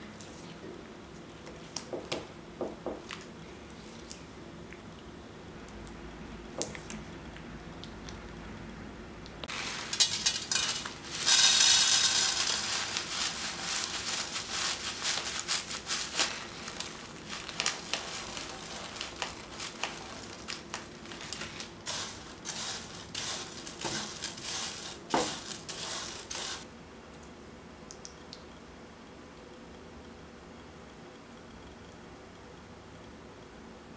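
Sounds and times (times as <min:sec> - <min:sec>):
candy pieces pouring onto tray: 0:09.5 - 0:26.6.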